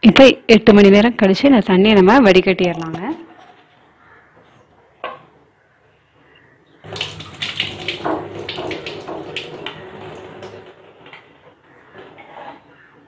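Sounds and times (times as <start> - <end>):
water splashing into steel sink: 6.8 - 10.7.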